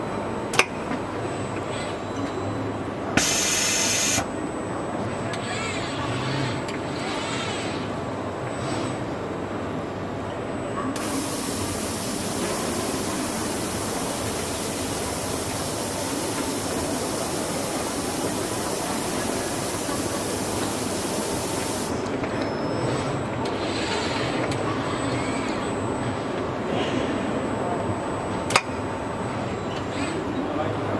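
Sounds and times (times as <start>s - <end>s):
compressed air hissing: 3.2s - 4.2s, 11.0s - 22.0s.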